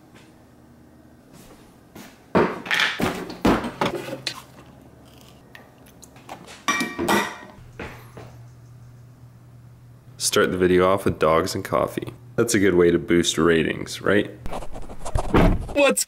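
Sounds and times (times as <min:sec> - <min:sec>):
low steady hum: 0:03.4 - 0:14.5
cups and dishes clinking: 0:06.6 - 0:08.3.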